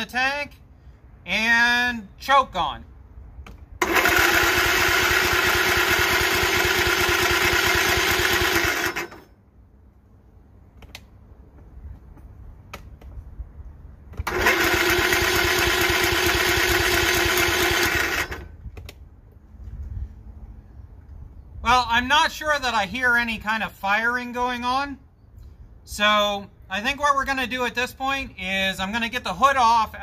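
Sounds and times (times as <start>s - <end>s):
electric starter cranking engine: 3.8s - 9.3s, 14.1s - 18.6s.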